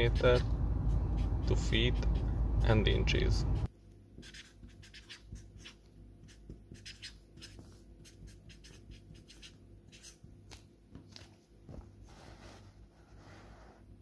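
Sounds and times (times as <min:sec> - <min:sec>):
marker scratching on paper: 0:00.0 - 0:02.4, 0:03.5 - 0:10.2.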